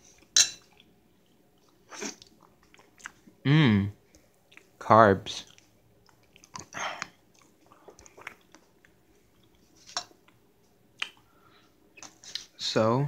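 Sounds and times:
person chewing food: 0:00.0 - 0:03.4, 0:04.0 - 0:04.8, 0:05.4 - 0:12.5
wet mouth clicks and smacks: 0:05.5 - 0:10.4, 0:11.0 - 0:11.2.

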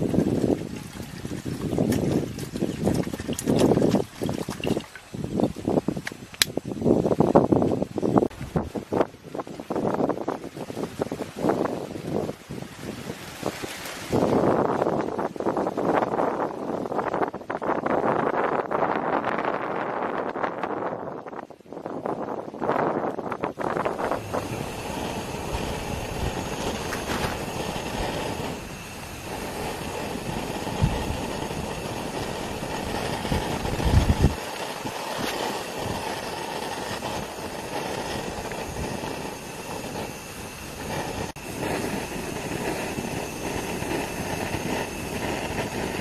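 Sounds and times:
camping stove hissing: 0:22.6 - 0:46.0.

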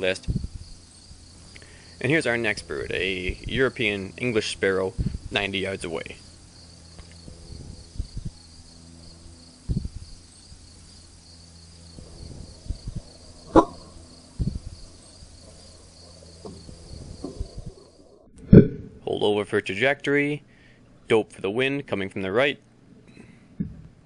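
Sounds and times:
crickets chirring: 0:00.0 - 0:18.3.

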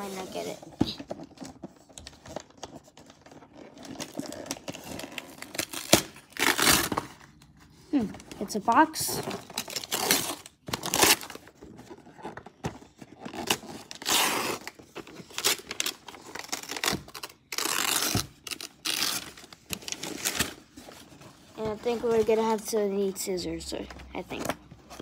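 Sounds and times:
wrapping paper tearing: 0:03.4 - 0:07.0, 0:13.4 - 0:20.6.

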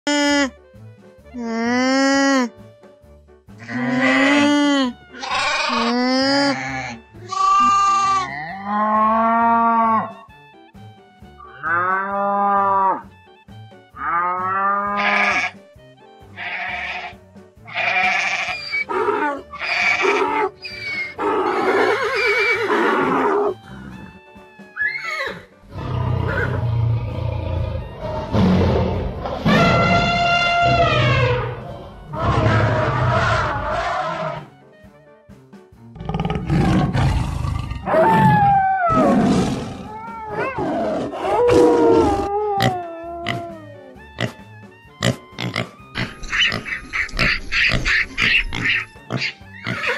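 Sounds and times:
light background music: 0:00.1 - 0:49.9
pitched animal cries: 0:03.6 - 0:10.3, 0:14.0 - 0:15.6, 0:16.4 - 0:23.6, 0:24.8 - 0:25.5, 0:29.4 - 0:34.5, 0:37.8 - 0:44.4, 0:45.1 - 0:49.9
shaky bleat-like calls: 0:05.1 - 0:10.2, 0:14.0 - 0:15.6, 0:16.4 - 0:21.7
low animal roar: 0:25.7 - 0:34.5, 0:36.0 - 0:43.7.

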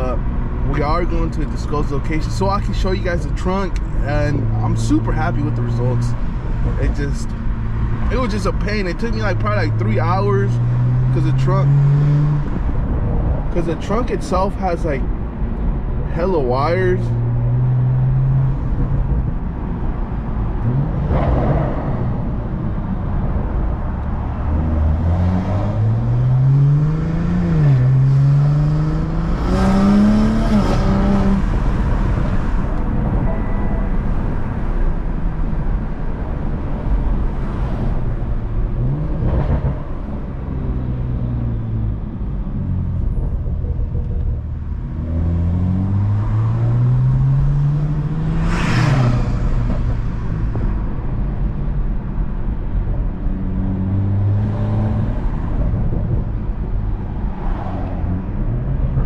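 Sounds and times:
car engine accelerating through gears: 0:09.3 - 0:13.4, 0:19.9 - 0:51.5, 0:53.0 - 0:59.0.

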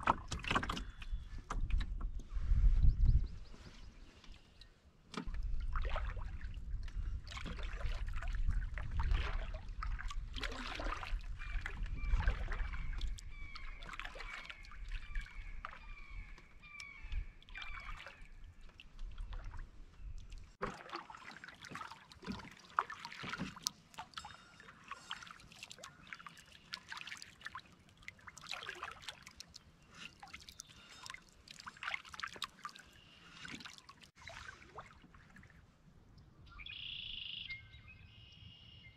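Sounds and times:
paddle water sloshing and dripping: 0:00.0 - 0:37.5
low wind rumble: 0:01.0 - 0:03.6
bird calling short notes: 0:36.5 - 0:38.9.

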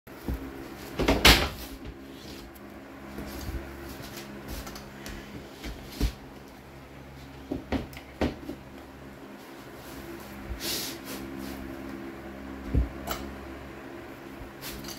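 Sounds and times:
flooring planks knocking: 0:07.5 - 0:08.7.

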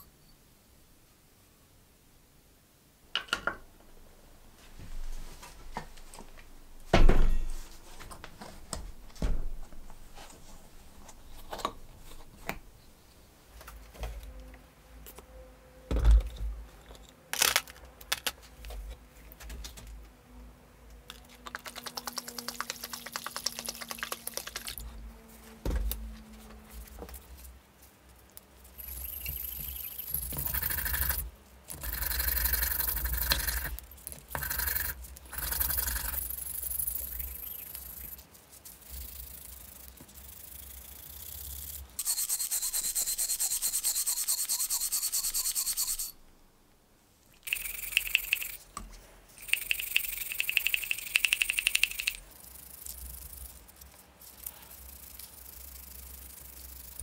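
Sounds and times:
brush scrubbing metal parts: 0:42.0 - 0:46.1.

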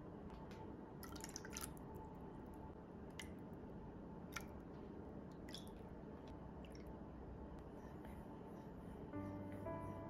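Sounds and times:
water splashing into bowl: 0:01.0 - 0:01.8.

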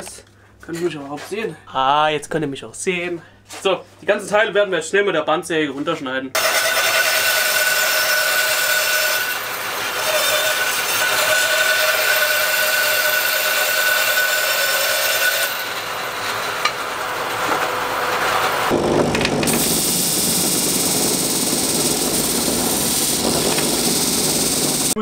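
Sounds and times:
bandsaw cutting wood: 0:06.4 - 0:25.0
disc sander sanding board: 0:06.4 - 0:25.0.

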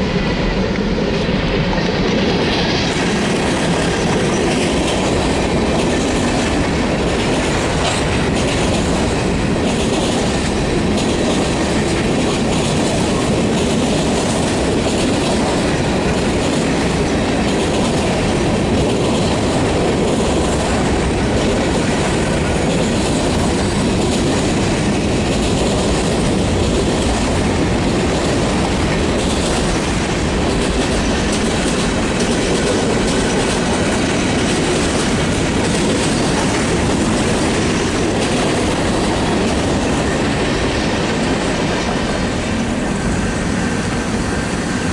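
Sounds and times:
train cars rumbling and rattling: 0:00.0 - 0:44.9
wheels clicking over rail joints: 0:01.8 - 0:42.9.

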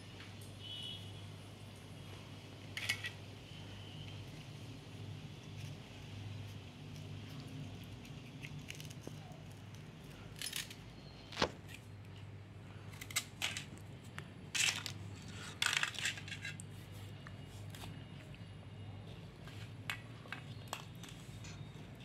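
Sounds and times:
crisp snacks crunching: 0:06.8 - 0:10.6.

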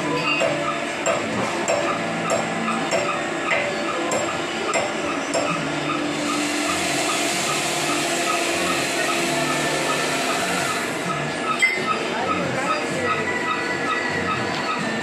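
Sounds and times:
machinery humming: 0:00.0 - 0:15.0.

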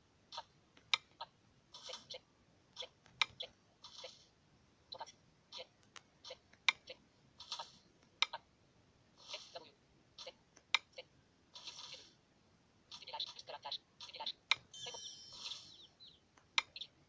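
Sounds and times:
fingers tapping touchscreen: 0:00.3 - 0:04.2, 0:04.9 - 0:08.4, 0:09.2 - 0:11.0, 0:12.9 - 0:16.9.

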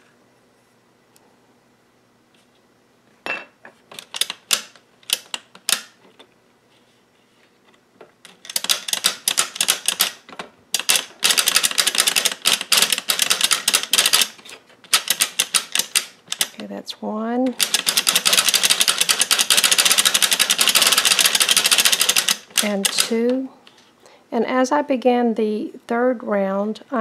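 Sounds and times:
knitting machine needles clicking: 0:03.9 - 0:05.9, 0:08.3 - 0:16.6, 0:17.5 - 0:23.5.

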